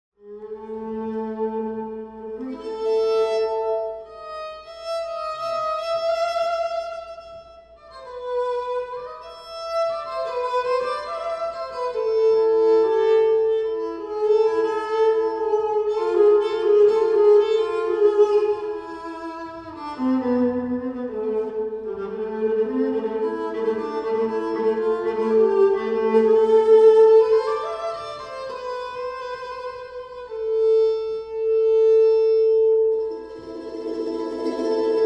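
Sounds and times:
violin playing slow melody: 0.2s - 35.0s
sustained string line: 13.5s - 35.0s.

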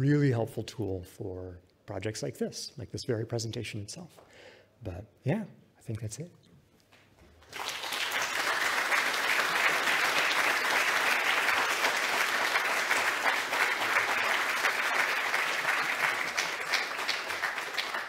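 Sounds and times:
audience applauding: 7.4s - 18.0s.

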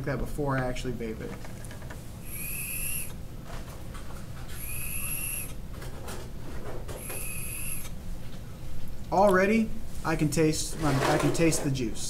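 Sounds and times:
air whistling through vape tank: 2.2s - 3.2s, 4.5s - 5.6s, 7.0s - 7.9s.

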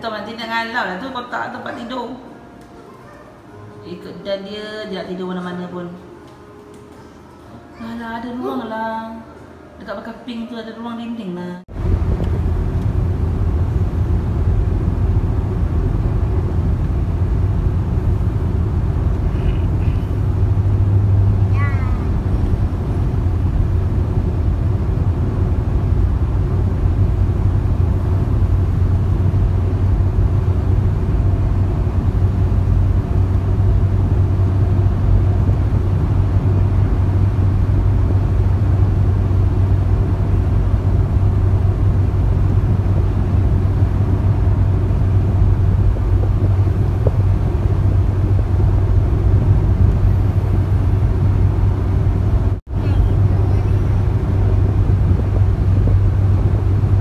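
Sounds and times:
car road and engine noise: 11.7s - 57.0s.

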